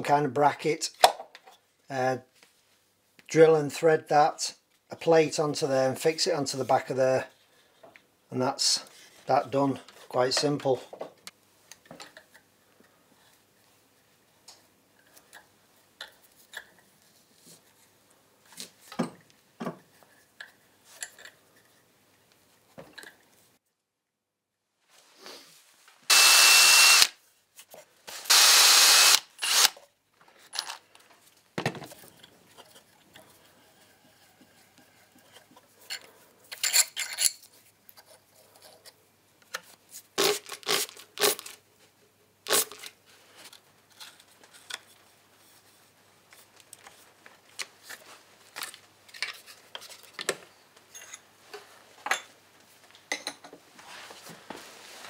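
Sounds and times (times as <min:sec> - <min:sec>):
cordless drill whining: 0:26.1 - 0:27.2, 0:28.2 - 0:29.8.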